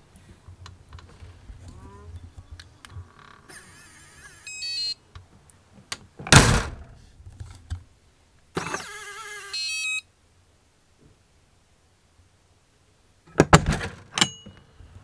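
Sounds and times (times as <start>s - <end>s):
electronic beeps: 4.4s - 5.0s, 9.4s - 10.0s
loud door thump: 6.2s - 7.0s, 13.4s - 14.0s
door lock motor whirring: 8.6s - 10.0s.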